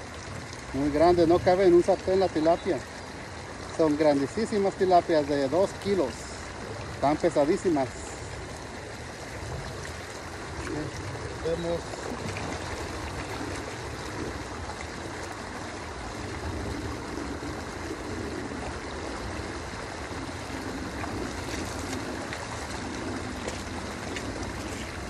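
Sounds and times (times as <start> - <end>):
person wading through water: 0.0 - 25.0
river water running: 0.0 - 25.0.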